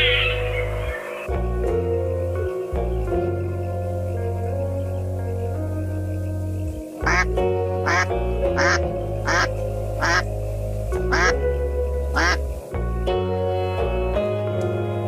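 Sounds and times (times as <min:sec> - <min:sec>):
background music: 0:00.0 - 0:15.0
duck quacking: 0:07.0 - 0:10.3, 0:11.1 - 0:11.4, 0:12.2 - 0:12.4.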